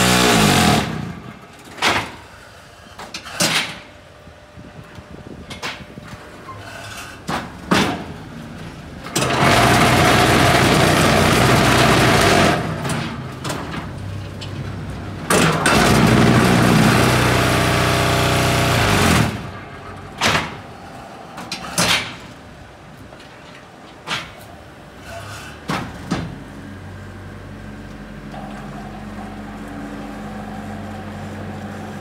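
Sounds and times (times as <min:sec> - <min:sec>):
machine vibration motors shaking: 0:09.1 - 0:13.0, 0:15.3 - 0:20.7.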